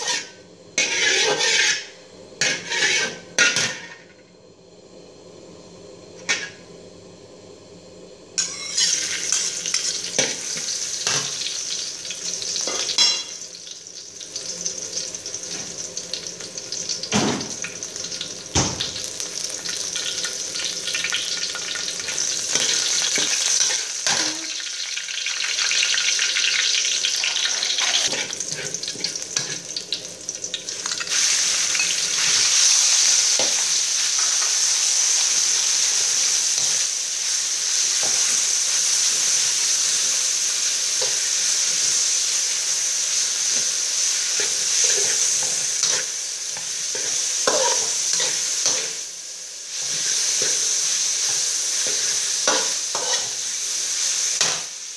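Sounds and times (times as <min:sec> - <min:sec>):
spatula scraping and tapping wok: 0:00.0 - 0:04.0, 0:08.4 - 0:11.4, 0:27.2 - 0:29.8, 0:44.4 - 0:49.0, 0:51.2 - 0:53.4, 0:54.4 - 0:54.7
food sizzling in a wok: 0:00.0 - 0:06.9, 0:07.6 - 0:54.9.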